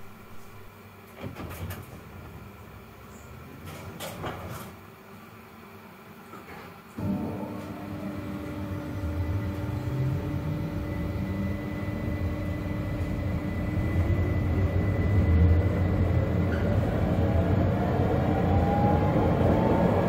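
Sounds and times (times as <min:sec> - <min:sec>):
tram wheels rumbling on rails: 0:00.0 - 0:02.5, 0:07.1 - 0:20.0
electrical whine: 0:07.0 - 0:20.0.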